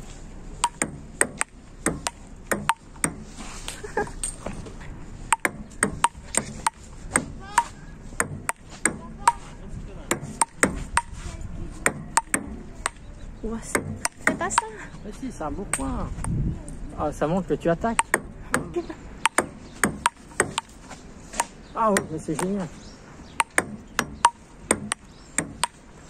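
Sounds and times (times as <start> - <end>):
table tennis ball clicking: 0.6 - 3.2, 11.9 - 13.0.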